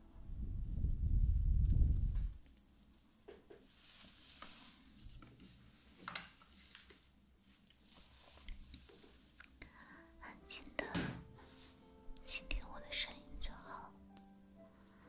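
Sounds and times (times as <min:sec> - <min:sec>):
low rumble: 0:00.0 - 0:02.4
hands handling cloth: 0:03.6 - 0:09.4
light clicks and taps: 0:12.1 - 0:13.5.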